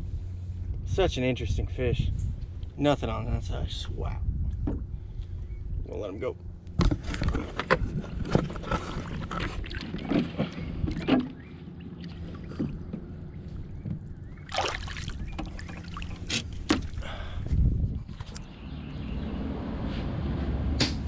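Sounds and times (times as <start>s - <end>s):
steady low hum: 0.0s - 21.0s
knocks and clatters on boat: 4.6s - 4.9s, 6.8s - 14.1s, 15.2s - 17.0s
water splashing against hull: 7.8s - 17.1s.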